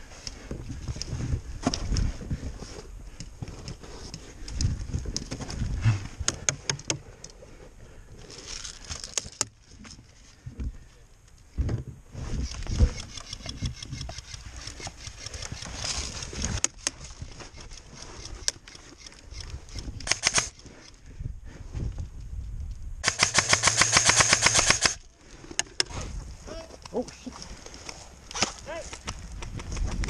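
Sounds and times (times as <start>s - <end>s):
airsoft rifle firing bursts: 20.1s - 20.5s, 23.0s - 25.0s.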